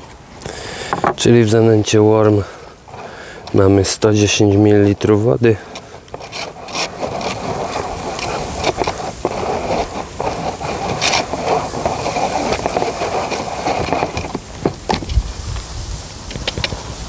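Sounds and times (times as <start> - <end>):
hands working damp bait in bowl: 2.5 - 15.2.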